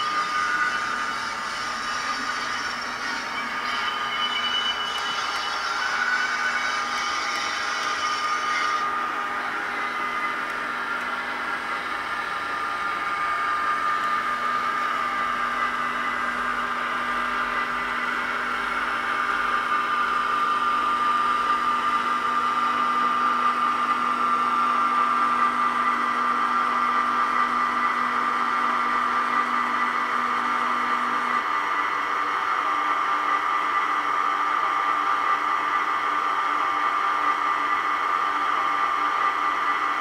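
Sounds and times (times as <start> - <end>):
high train flange squeal: 0.0 - 26.0.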